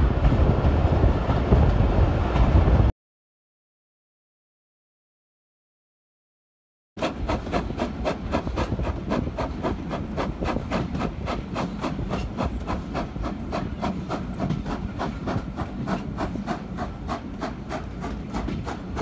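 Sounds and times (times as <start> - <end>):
train wheels rumbling on rails: 0.0 - 2.9, 7.0 - 19.0
steam locomotive chuffing: 7.0 - 19.0.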